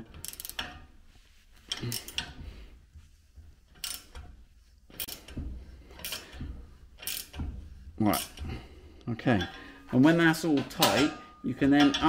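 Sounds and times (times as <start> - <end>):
ratcheting spanner clicking: 0.0 - 0.8, 3.7 - 8.4.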